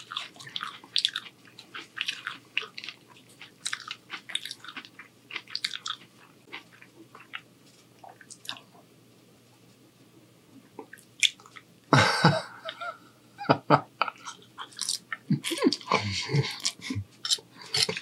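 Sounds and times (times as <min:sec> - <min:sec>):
chewing with mouth smacks: 0:00.0 - 0:08.8, 0:10.8 - 0:11.7, 0:14.0 - 0:18.0.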